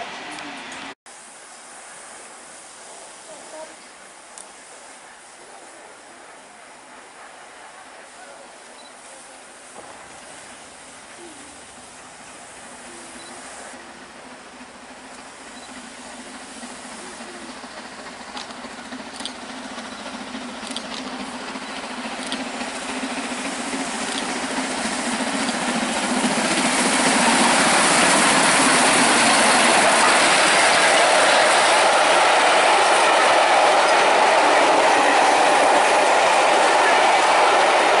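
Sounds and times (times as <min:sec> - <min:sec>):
steam locomotive approaching: 0:00.0 - 0:38.0
train wheels rushing on rails: 0:00.0 - 0:38.0.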